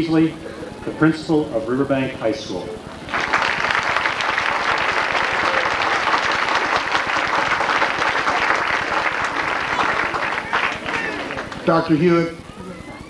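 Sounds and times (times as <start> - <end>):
audience applauding: 2.8 - 12.5.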